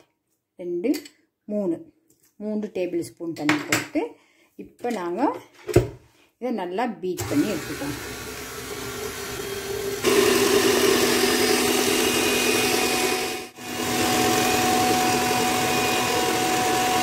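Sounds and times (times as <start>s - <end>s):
electric mixer beating batter: 7.2s - 17.0s.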